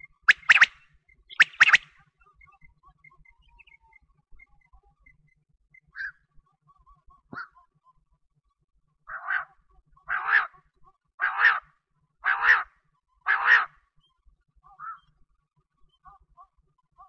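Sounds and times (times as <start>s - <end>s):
quail calling: 0.0s - 1.9s, 6.0s - 6.2s, 10.1s - 10.6s, 11.2s - 12.7s, 13.3s - 13.7s
soft short chirps: 0.0s - 3.9s.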